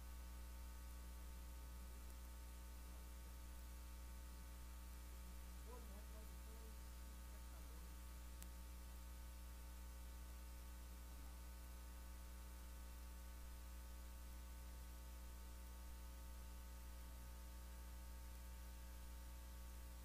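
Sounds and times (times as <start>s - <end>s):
faint hiss: 0.0s - 9.5s
electrical mains hum: 0.0s - 20.0s
faint click: 8.4s - 8.6s.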